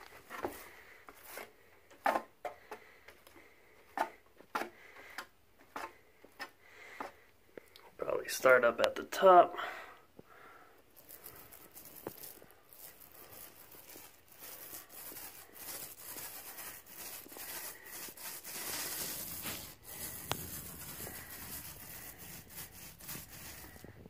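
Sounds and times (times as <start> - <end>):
paint roller crackling hiss: 11.0 - 23.9.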